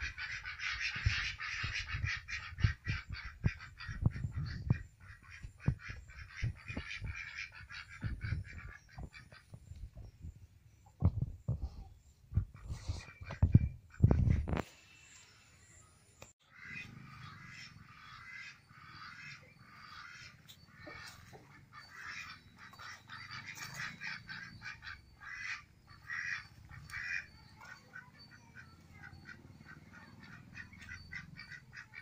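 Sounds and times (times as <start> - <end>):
ducks quacking: 0.0 - 9.6, 16.4 - 32.0.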